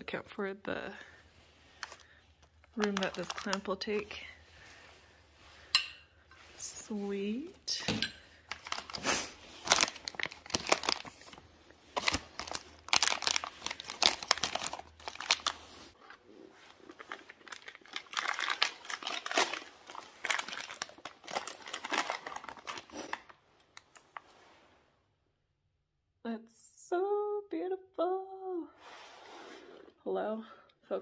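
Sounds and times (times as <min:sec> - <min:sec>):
plastic bags crinkling: 0:01.7 - 0:04.9, 0:06.7 - 0:24.2.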